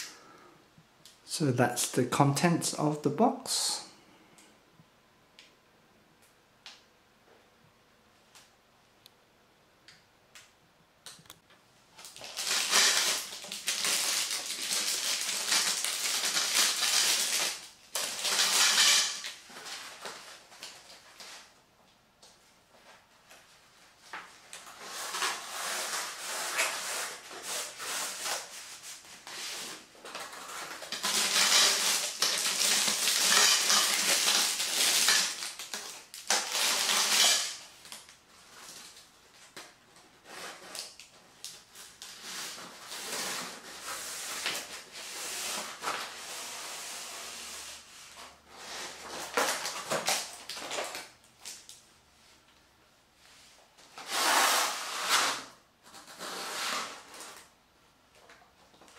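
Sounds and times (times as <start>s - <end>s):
plastic packaging rustling: 12.0s - 21.6s, 22.8s - 46.6s, 47.8s - 51.9s.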